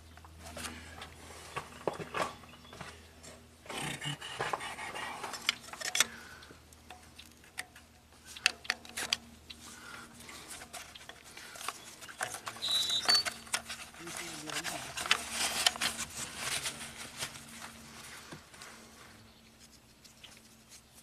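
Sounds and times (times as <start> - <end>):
screwdriver clicks and scrapes: 5.3 - 6.1.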